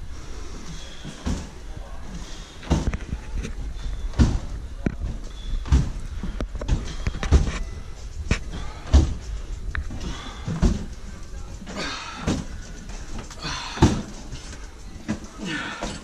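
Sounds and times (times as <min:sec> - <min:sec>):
hand truck thumping on stairs: 0:08.6 - 0:11.0, 0:11.8 - 0:14.4.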